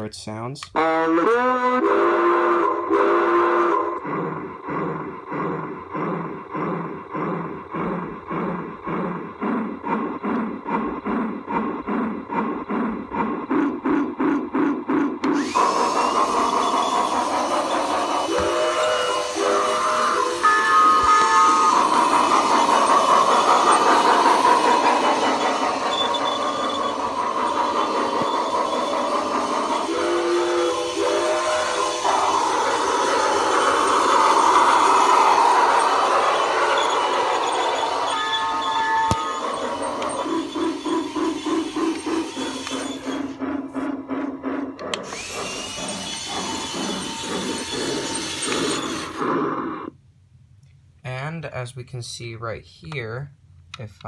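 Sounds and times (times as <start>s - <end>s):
toy train whistle: 0.7s - 4.1s, 15.3s - 43.4s, 45.0s - 49.2s
steady hum: 1.9s - 50.3s
toy train rattling on track: 12.5s - 49.3s.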